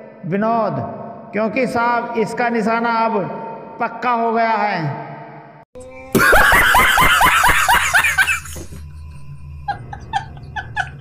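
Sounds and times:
man laughing loudly: 6.1s - 8.9s, 9.6s - 11.0s.

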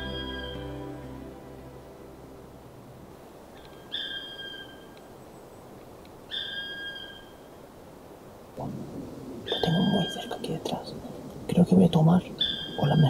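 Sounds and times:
woodpecker calling: 3.6s - 5.0s, 6.3s - 7.4s.

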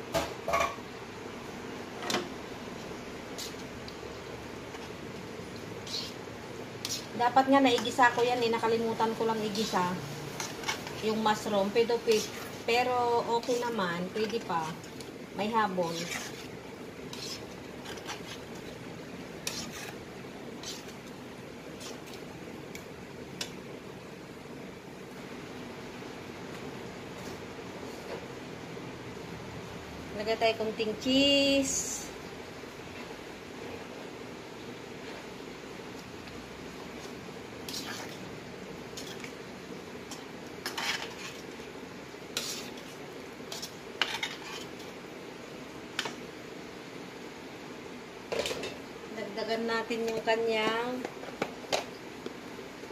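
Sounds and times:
spatula scraping metal pan: 5.8s - 6.2s, 6.8s - 8.2s, 9.2s - 14.7s, 15.4s - 18.5s, 19.4s - 21.0s, 40.6s - 41.4s, 42.3s - 42.9s, 43.5s - 44.8s.

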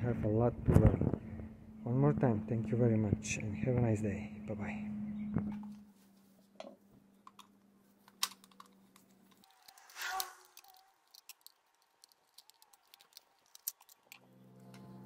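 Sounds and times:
gloved hand handling noise: 7.3s - 14.8s.

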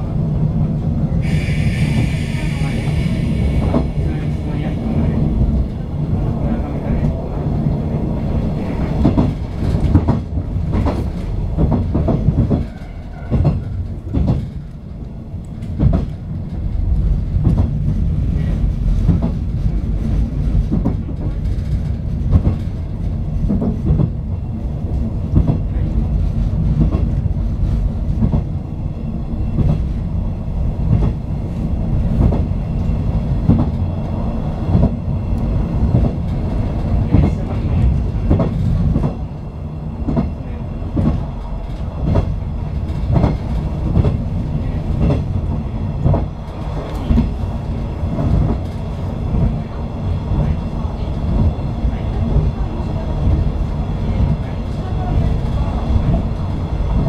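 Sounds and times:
clickety-clack of rail joints: 0.0s - 57.0s
train wheels rumbling on rail: 0.0s - 57.0s.

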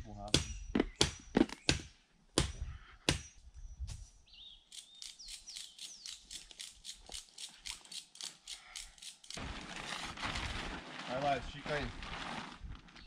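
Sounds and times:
plastic tarp rustling: 9.4s - 13.0s.

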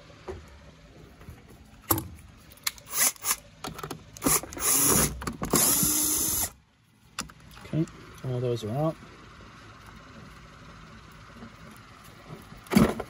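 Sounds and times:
cordless drill driving screws: 2.9s - 3.4s, 4.2s - 6.6s.

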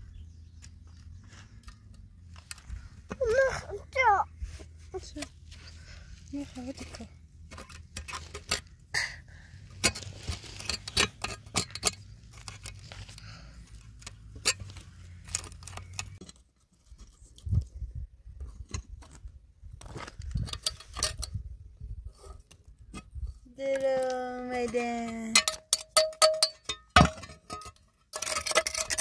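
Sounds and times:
metallic clicks and scrapes: 4.9s - 17.7s, 18.4s - 29.0s.

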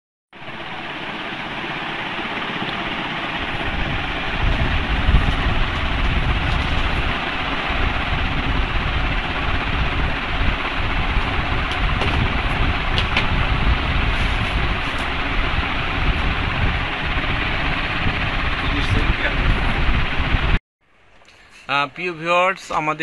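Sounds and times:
steady rushing noise: 0.4s - 20.6s.

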